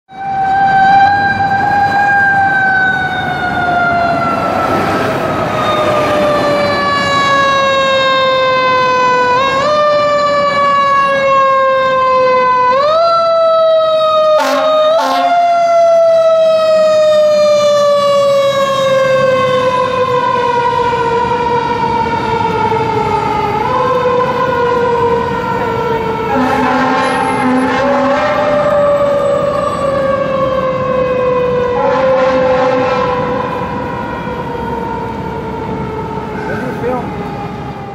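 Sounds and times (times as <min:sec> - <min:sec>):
fire engine siren wailing: 0:00.1 - 0:37.9
low air horn blasts: 0:14.3 - 0:15.4, 0:26.3 - 0:28.8, 0:31.7 - 0:33.6.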